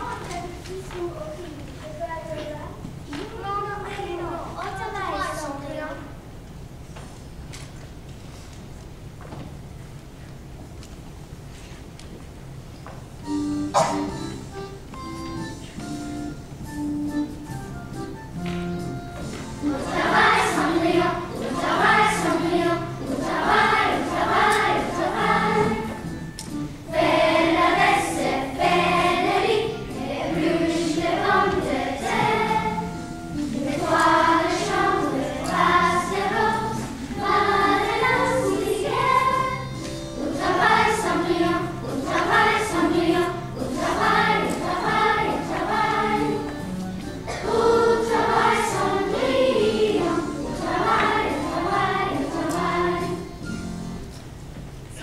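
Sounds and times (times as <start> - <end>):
children singing: 19.6 - 26.1, 26.9 - 46.6, 47.3 - 53.4.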